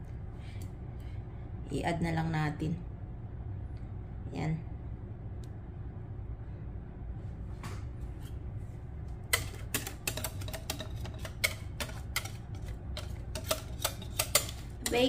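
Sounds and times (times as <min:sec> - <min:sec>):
steady low hum: 0:00.0 - 0:15.0
kitchenware clicks and taps: 0:09.3 - 0:15.0.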